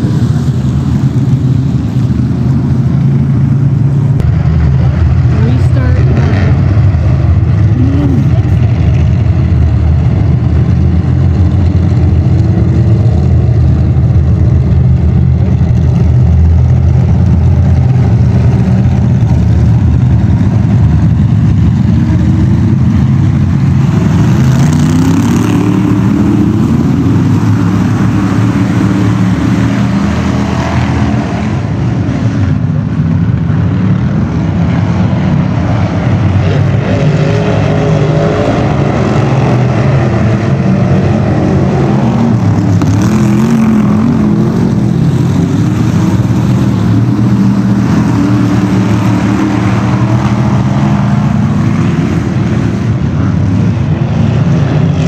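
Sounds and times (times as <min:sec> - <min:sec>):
race car engines droning: 0:00.0 - 0:55.0.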